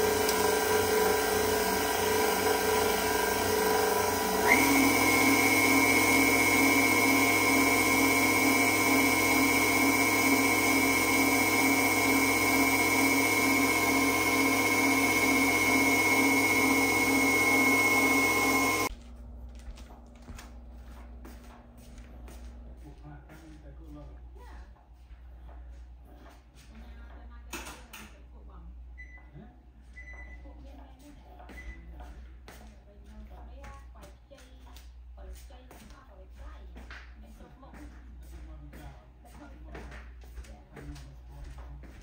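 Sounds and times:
electric appliance motor whine: 0.0 - 22.8.

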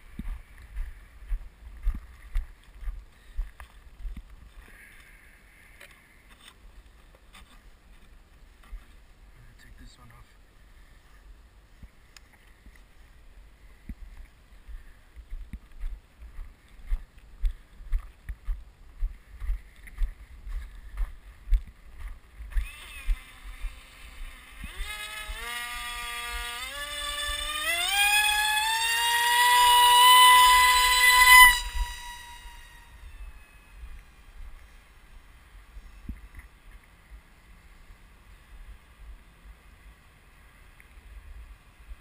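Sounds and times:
footsteps on snow: 0.0 - 4.9, 13.9 - 25.4
electric motor and propeller whining: 22.4 - 34.7.

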